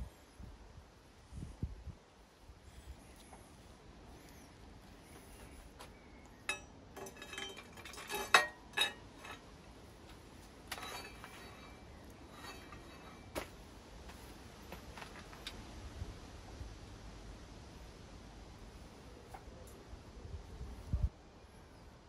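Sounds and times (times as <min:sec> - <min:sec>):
small metal parts clinking: 0:06.5 - 0:09.5, 0:10.7 - 0:13.4.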